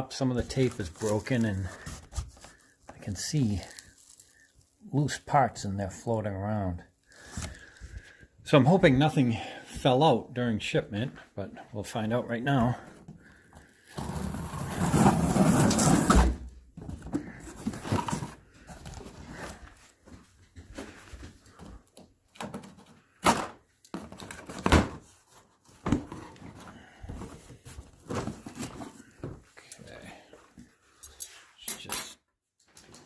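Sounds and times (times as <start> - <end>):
cardboard rustling: 0.3 - 4.4, 12.7 - 20.0, 23.9 - 29.5.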